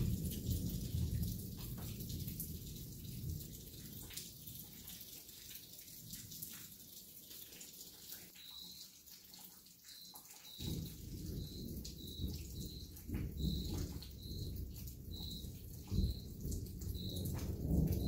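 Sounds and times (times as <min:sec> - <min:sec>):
low rumble of thunder: 0:00.0 - 0:04.1, 0:10.6 - 0:18.0
steady rain hissing: 0:00.0 - 0:09.1, 0:09.7 - 0:18.0.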